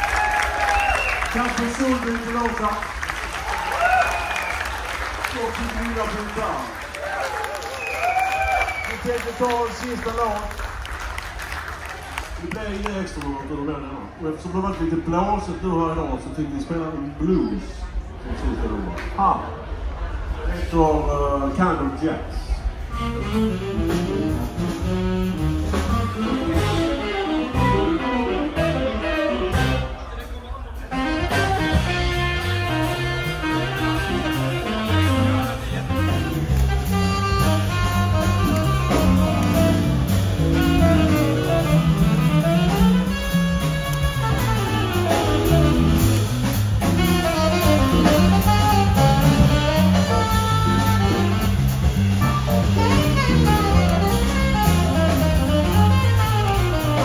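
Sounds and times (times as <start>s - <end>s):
drums: 0.0s - 57.0s
bass line: 22.6s - 30.2s, 30.8s - 57.0s
live blues band: 22.6s - 57.0s
saxophone: 22.8s - 30.2s, 30.8s - 57.0s.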